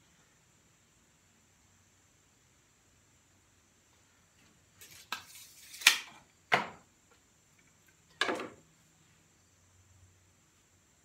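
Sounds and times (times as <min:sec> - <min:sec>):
tape measure retracting and snapping: 0:04.8 - 0:06.2.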